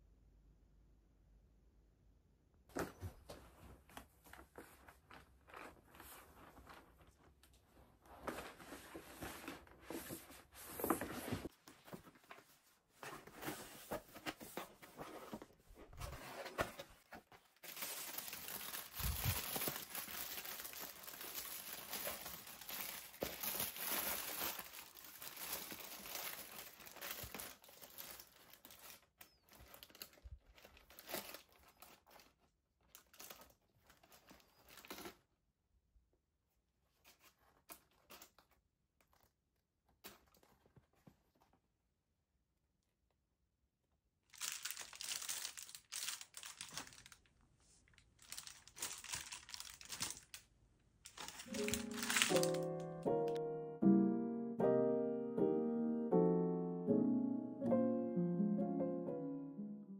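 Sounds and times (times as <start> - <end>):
paper bag rustling: 2.8 - 35.2, 44.3 - 50.4, 51.0 - 53.4
tissue paper crinkling: 3.5 - 35.2, 44.3 - 50.4, 51.0 - 53.4.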